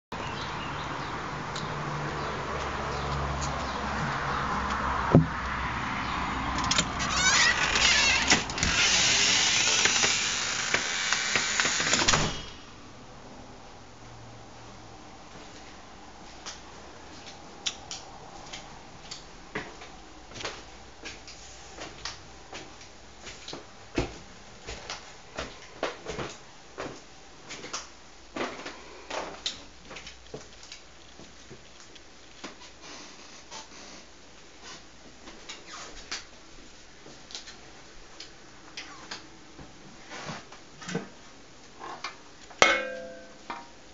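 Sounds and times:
door squeaking and clattering: 6.6s - 12.6s
door shutting: 6.6s - 12.7s.

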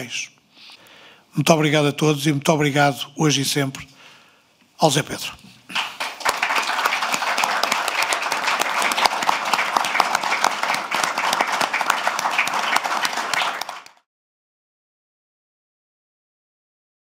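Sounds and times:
audience applause: 5.7s - 14.1s.

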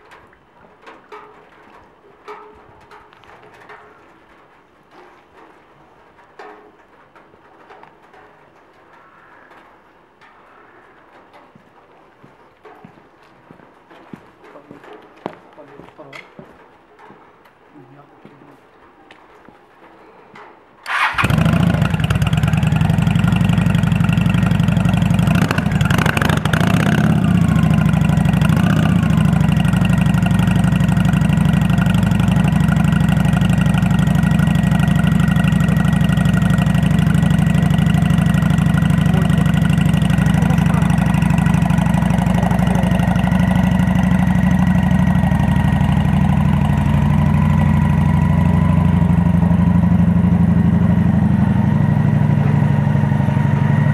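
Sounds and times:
motorcycle engine starting and idling: 20.8s - 53.9s.

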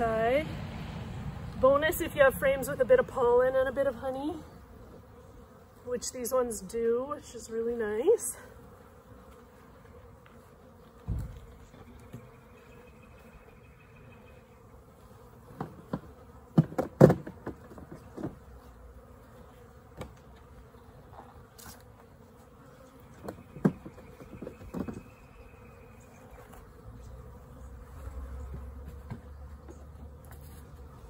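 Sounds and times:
honeybees buzzing: 0.0s - 31.0s.

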